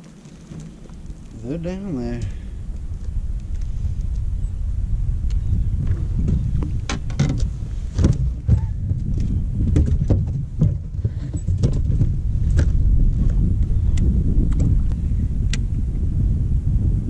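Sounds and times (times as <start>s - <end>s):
wind buffeting microphone: 0.0s - 17.0s
handling knocks and clicks: 5.9s - 13.4s.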